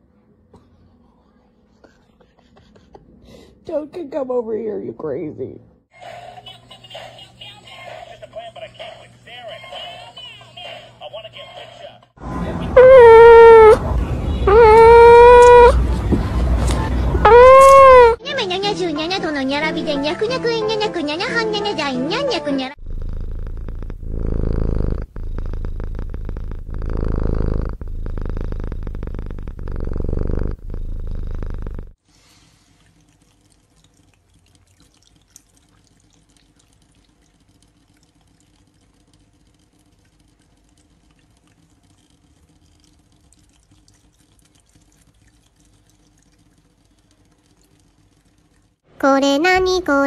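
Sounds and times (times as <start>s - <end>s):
cat purring loudly: 14.4s - 15.8s, 22.8s - 32.0s
cat licking water: 32.1s - 48.8s
tap water trickling: 32.5s - 48.8s.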